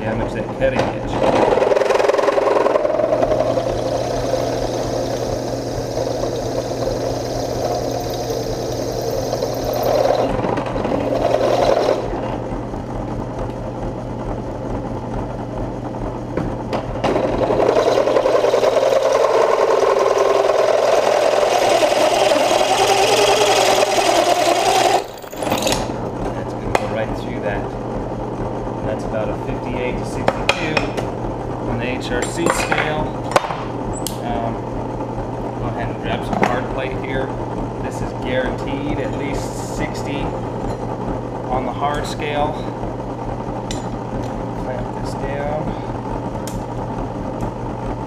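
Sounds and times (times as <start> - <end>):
drill press motor hum: 1.1 - 48.0
drill bit grinding metal: 1.4 - 12.4, 17.1 - 26.0.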